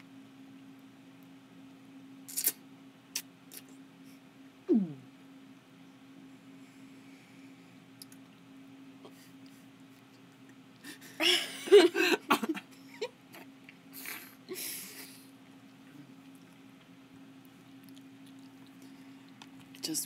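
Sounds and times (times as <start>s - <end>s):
low electrical hum: 0.0s - 20.0s
person laughing: 10.8s - 15.3s.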